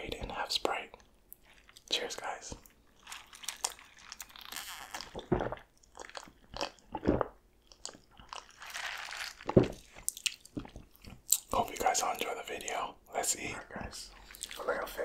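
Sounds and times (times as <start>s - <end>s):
loud gulps: 5.0s - 5.7s.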